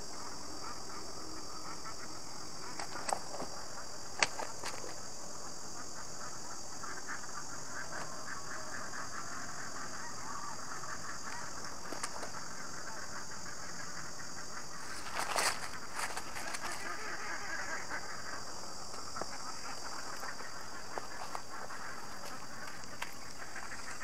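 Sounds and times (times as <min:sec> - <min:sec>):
scuffs and rustles on leaves: 0:14.8 - 0:17.2.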